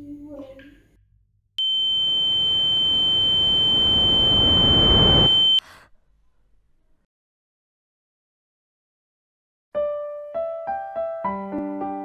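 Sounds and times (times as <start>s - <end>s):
high-pitched electronic tone: 1.6s - 5.6s
swell of noise: 3.2s - 5.6s.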